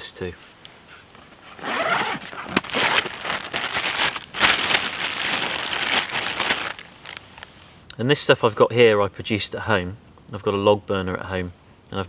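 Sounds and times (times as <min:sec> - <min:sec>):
plastic bag crinkling: 0:01.6 - 0:07.6.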